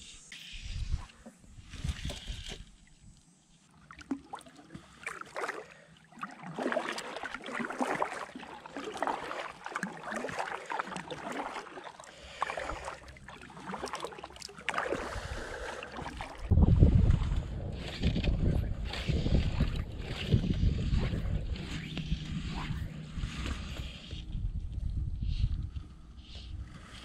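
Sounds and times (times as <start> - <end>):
kayak paddle splashing: 3.6 - 24.1
low rumbles: 16.3 - 26.9.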